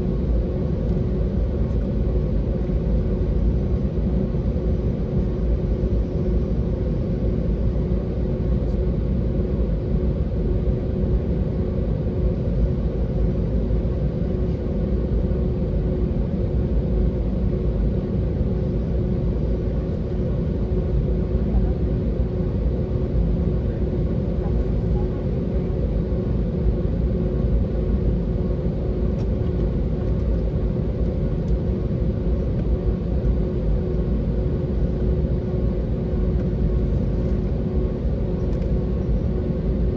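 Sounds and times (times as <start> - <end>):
constant cabin hum: 0.0 - 39.9
jet engines rumbling: 0.0 - 39.9.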